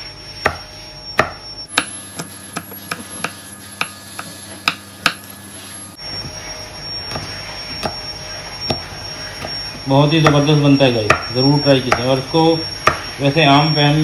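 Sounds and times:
knife chopping on cutting board: 0.4s - 5.2s, 11.1s - 11.3s, 12.8s - 13.1s.

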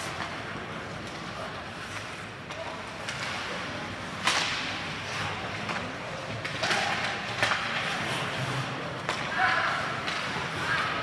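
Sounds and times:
hockey stick cracking puck: 4.2s - 4.8s, 6.4s - 8.0s.

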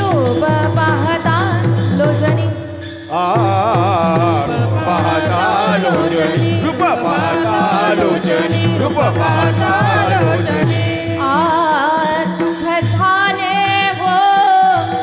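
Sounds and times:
voices singing long wavering notes: 3.1s - 11.8s.

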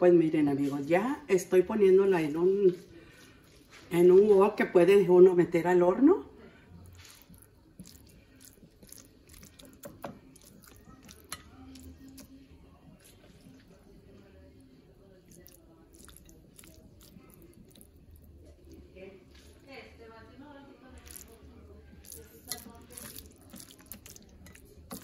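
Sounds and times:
wet squelching: 6.9s - 12.4s, 22.0s - 25.0s.

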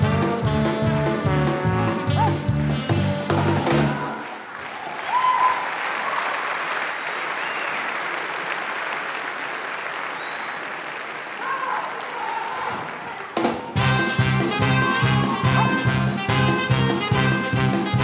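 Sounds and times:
audience applauding: 3.6s - 17.5s
short cheers: 3.9s - 6.6s, 10.1s - 13.4s, 14.7s - 16.1s.

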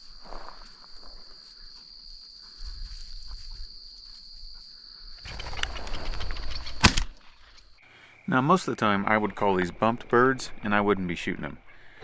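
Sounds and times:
footsteps through grass: 0.0s - 7.7s
insects trilling: 0.0s - 12.0s.

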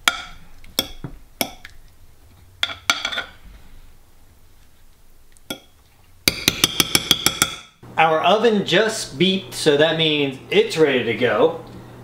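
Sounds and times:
spoon tapping: 0.0s - 1.8s, 2.6s - 3.3s, 5.5s - 7.8s
metal spoon scraping ceramic dish: 2.6s - 3.4s.

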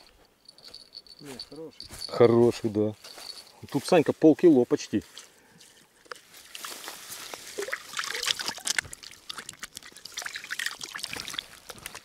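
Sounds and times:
water splashing: 6.4s - 12.0s.

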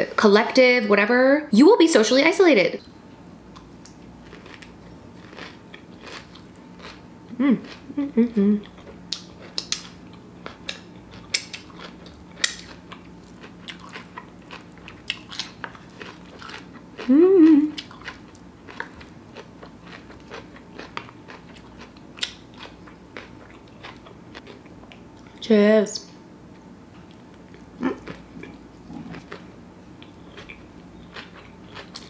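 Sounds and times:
chewing with wet clicks: 3.5s - 7.0s, 8.6s - 17.1s, 17.7s - 25.4s, 26.5s - 32.0s.

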